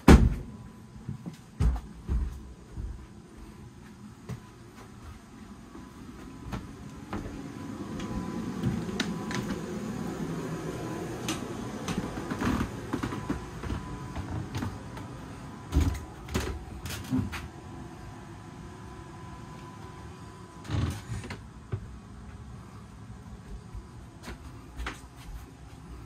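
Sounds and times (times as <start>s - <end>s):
footsteps in wooden cabin: 0.0s - 9.8s, 11.2s - 17.6s, 20.7s - 26.0s.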